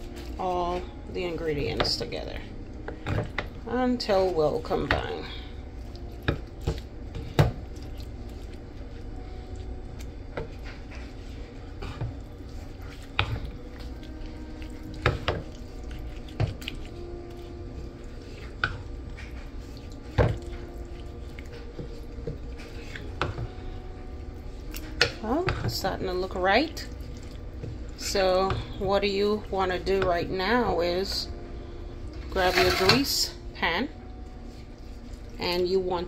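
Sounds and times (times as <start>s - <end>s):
spoon stirring thick batter: 2.9s - 23.6s, 32.3s - 33.2s.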